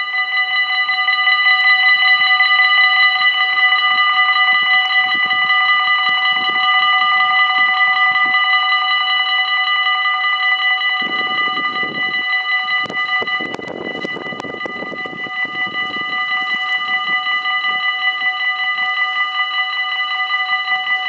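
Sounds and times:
level crossing bells ringing: 0:00.0 - 0:21.0.

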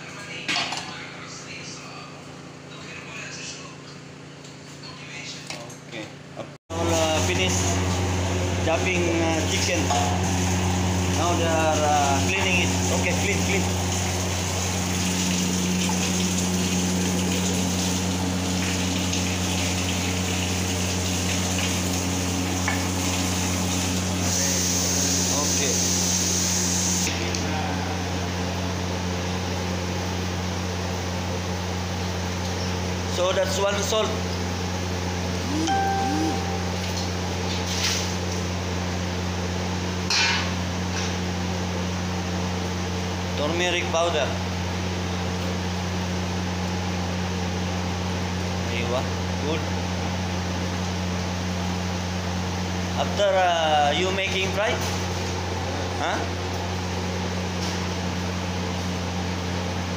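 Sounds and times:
low hum: 0:35.4 - 0:37.6.

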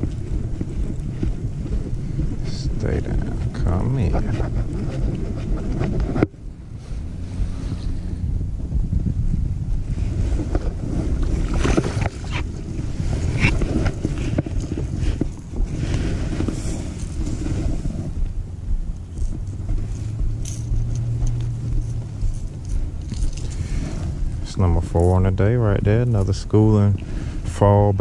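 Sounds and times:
steady low hum: 0:00.0 - 0:28.0
wind buffeting microphone: 0:00.0 - 0:28.0
handling clicks and knocks: 0:18.9 - 0:23.6.

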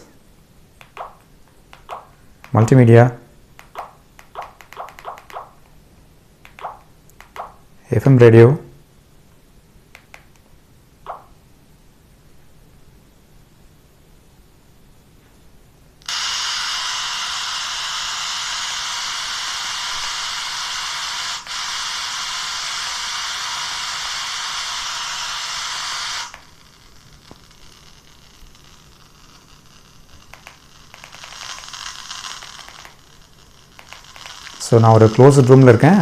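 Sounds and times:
radio static hiss: 0:00.8 - 0:05.8, 0:06.4 - 0:08.6, 0:16.0 - 0:36.0
small clicks: 0:03.6 - 0:05.7, 0:06.4 - 0:07.6, 0:09.9 - 0:10.5, 0:30.3 - 0:33.1, 0:33.7 - 0:34.6.

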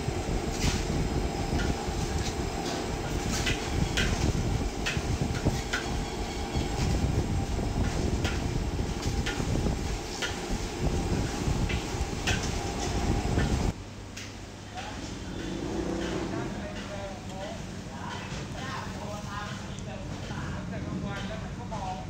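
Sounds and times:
gas burner roaring: 0:00.0 - 0:20.8
spatula knocking and scraping wok: 0:01.5 - 0:13.7, 0:15.3 - 0:17.2.

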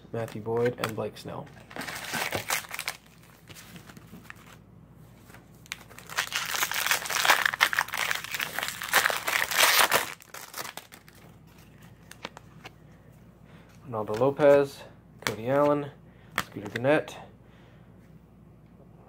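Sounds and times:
foil wrapper crinkling: 0:01.7 - 0:04.6, 0:05.6 - 0:11.3.

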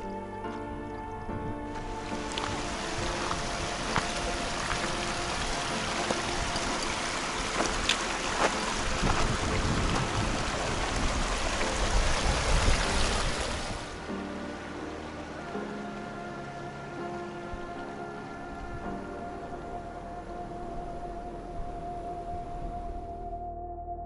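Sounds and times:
stream running over stones: 0:01.7 - 0:16.1
small water splashes: 0:01.8 - 0:14.0.

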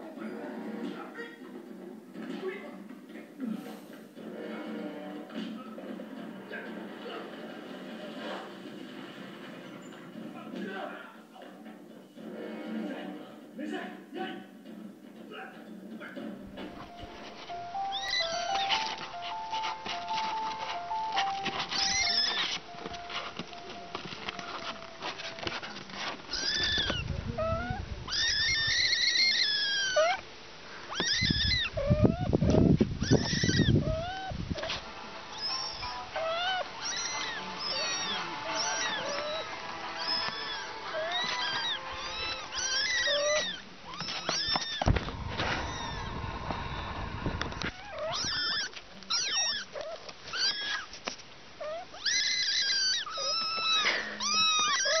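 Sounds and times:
kittens mewing: 0:16.8 - 0:55.0
low rumbling noise: 0:44.9 - 0:47.6.

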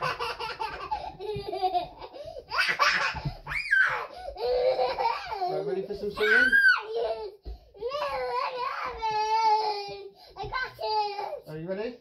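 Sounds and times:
young child laughing: 0:00.0 - 0:05.6
child squealing: 0:02.6 - 0:04.8, 0:06.1 - 0:09.6.

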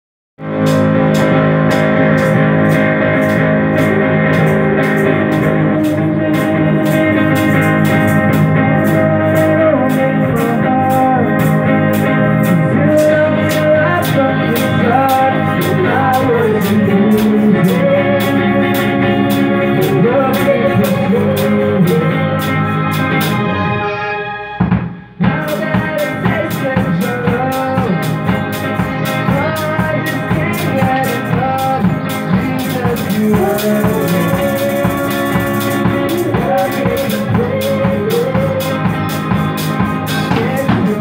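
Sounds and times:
steady ticking beat: 0:00.4 - 0:23.4, 0:24.6 - 0:41.0
sustained chords with guitar: 0:00.4 - 0:41.0
gliding melody line: 0:21.0 - 0:25.2.

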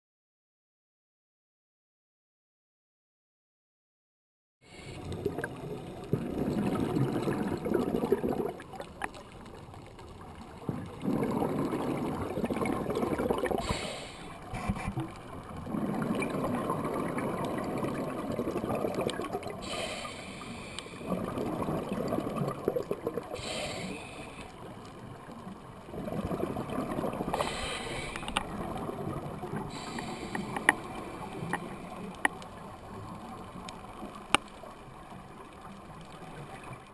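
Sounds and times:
regulator inhale hiss: 0:04.6 - 0:05.2, 0:13.6 - 0:14.8, 0:19.6 - 0:21.1, 0:23.3 - 0:24.7, 0:27.3 - 0:28.4, 0:29.6 - 0:32.2
exhaled bubbles rushing: 0:05.0 - 0:13.8, 0:14.4 - 0:19.7, 0:20.4 - 0:33.4.

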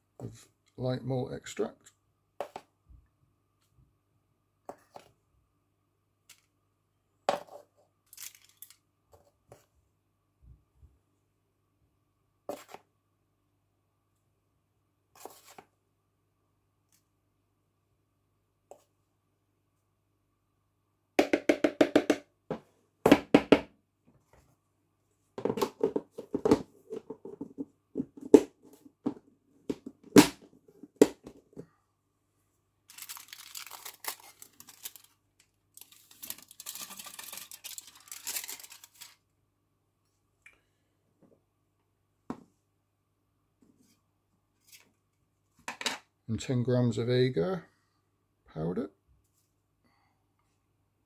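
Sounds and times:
aluminium foil rustling: 0:08.0 - 0:08.8, 0:32.9 - 0:39.2.

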